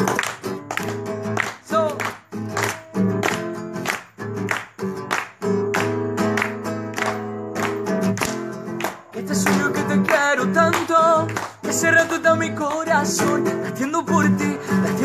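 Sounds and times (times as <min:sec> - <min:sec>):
acoustic guitar strumming: 0:00.0 - 0:15.0
man singing: 0:01.5 - 0:02.2, 0:08.9 - 0:15.0.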